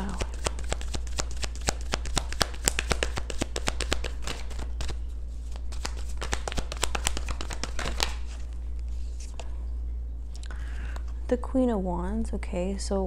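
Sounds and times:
cards shuffled by hand: 0.0s - 9.4s.

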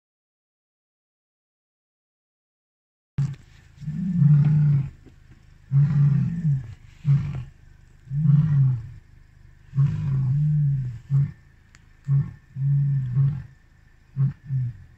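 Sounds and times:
lion roaring: 3.2s - 5.0s, 5.6s - 14.9s.

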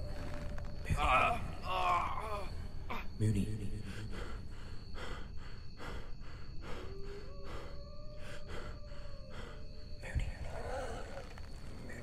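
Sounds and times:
man panting heavily: 4.0s - 9.6s.

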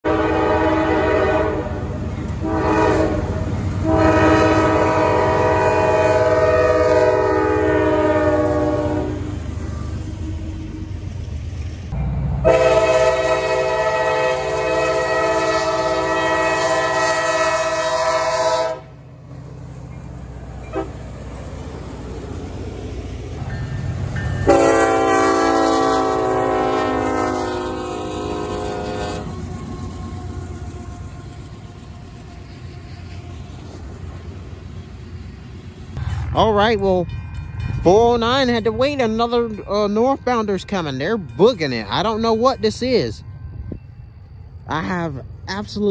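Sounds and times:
locomotive air horn blasts: 0.0s - 10.5s, 12.4s - 19.0s, 20.6s - 21.0s, 24.4s - 29.9s
train cars rumbling by: 0.0s - 45.9s.

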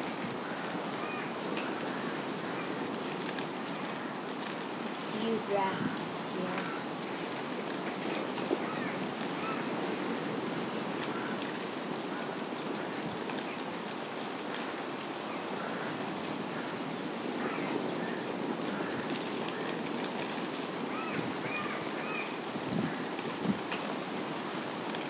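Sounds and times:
steady rushing noise: 5.1s - 6.8s.

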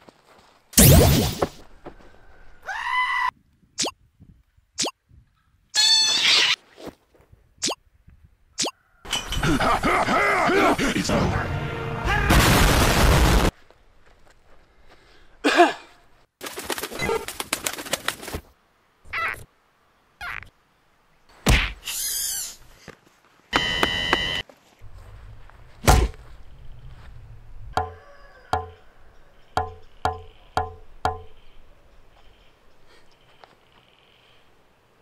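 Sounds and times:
thuds and whooshes: 25.8s - 26.2s.

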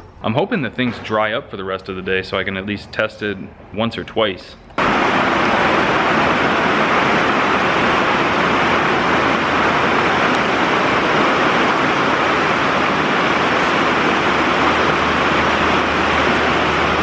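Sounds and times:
heavy rain on metal roof: 4.8s - 17.0s.

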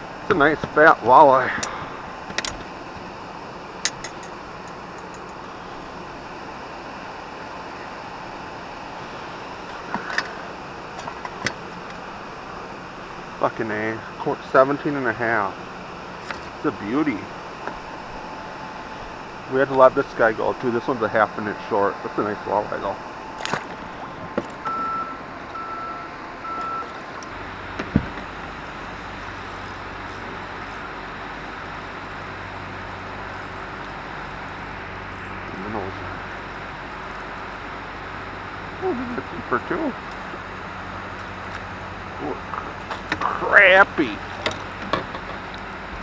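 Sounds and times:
river rushing: 0.0s - 13.4s
low hum: 0.0s - 46.0s
short electronic beeps: 24.7s - 26.9s.

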